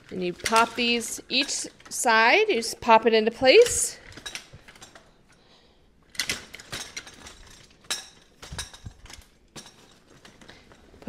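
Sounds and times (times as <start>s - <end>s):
playpen frame clicking and knocking: 0.0s - 2.0s, 3.5s - 5.1s, 6.1s - 11.0s.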